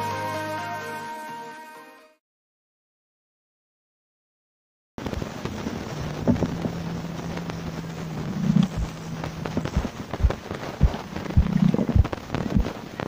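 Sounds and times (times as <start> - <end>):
steady low hum: 5.0 - 13.0.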